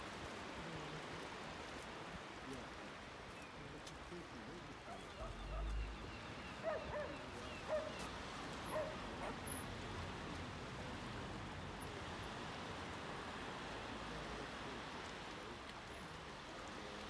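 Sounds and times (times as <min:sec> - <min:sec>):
dog yapping: 0:06.6 - 0:08.0, 0:08.7 - 0:09.4.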